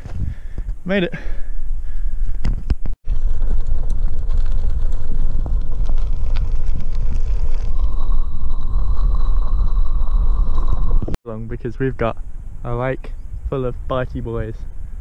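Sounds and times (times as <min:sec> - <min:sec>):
wind rushing over microphone: 0:00.0 - 0:00.9, 0:01.5 - 0:15.0
bicycle tyre rumble: 0:00.0 - 0:11.2
steady whine: 0:01.6 - 0:15.0.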